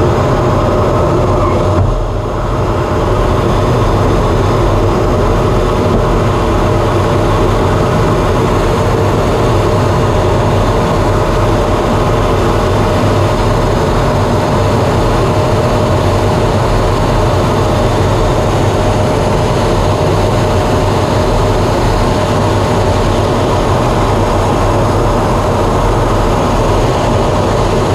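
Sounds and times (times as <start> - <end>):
jet engine and airflow noise: 0.0 - 27.9.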